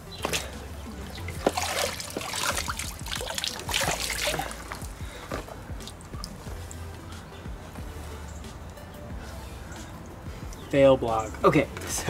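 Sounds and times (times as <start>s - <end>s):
pond water splashing and trickling: 0.0s - 6.9s
water dripping: 0.2s - 7.1s.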